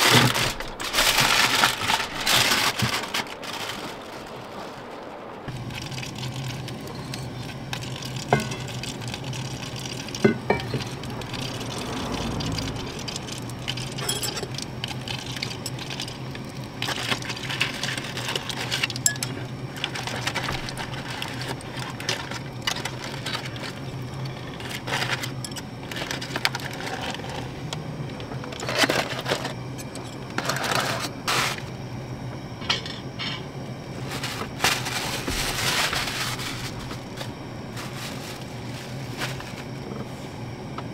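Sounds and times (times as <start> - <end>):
aluminium foil crinkling: 0.0 - 31.8, 33.9 - 40.1
steady low hum: 0.0 - 40.9
metal plates and tongs clinking: 8.3 - 8.7, 13.9 - 14.6, 19.0 - 19.4.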